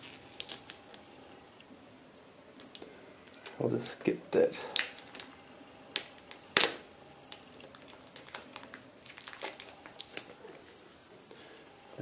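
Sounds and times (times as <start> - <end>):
packing tape crinkling: 0.0 - 1.2, 4.7 - 10.8.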